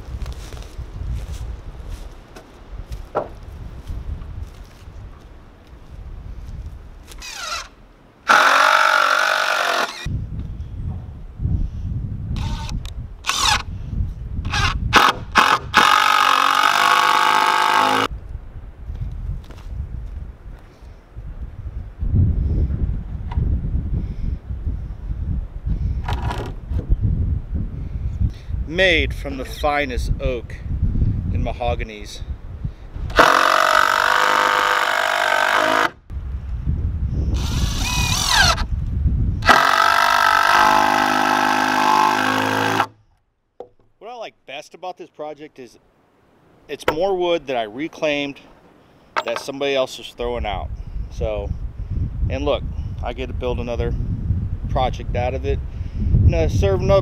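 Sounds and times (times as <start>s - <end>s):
impact driver driving screw: 8.3s - 10.1s, 33.1s - 36.0s, 37.4s - 38.6s, 39.4s - 42.9s.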